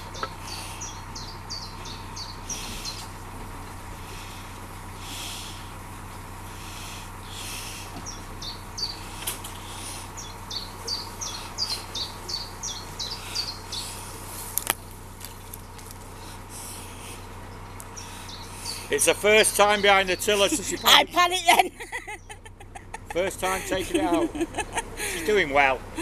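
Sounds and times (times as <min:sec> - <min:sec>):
bird chirping: 0:00.0 - 0:03.1, 0:06.7 - 0:14.5, 0:15.4 - 0:26.0
boat engine humming: 0:00.0 - 0:26.0.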